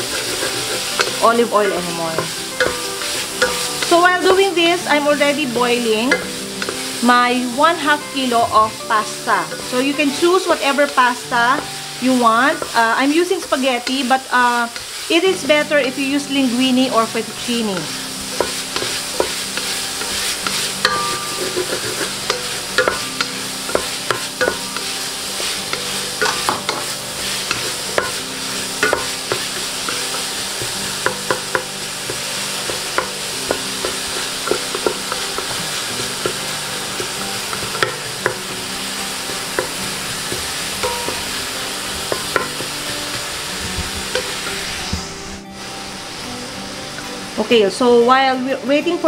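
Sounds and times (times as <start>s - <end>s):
wooden spatula scraping a pot: 0.0s - 4.6s, 17.7s - 38.0s
bacon sizzling in fat: 0.0s - 48.6s.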